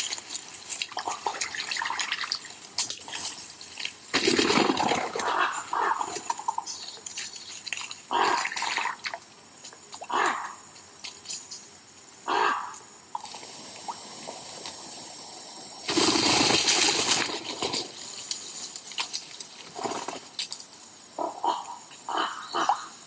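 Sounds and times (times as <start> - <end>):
wing flapping: 0.0 - 9.0, 15.8 - 20.6
short animal calls: 8.1 - 8.8, 10.1 - 10.6, 12.3 - 12.8.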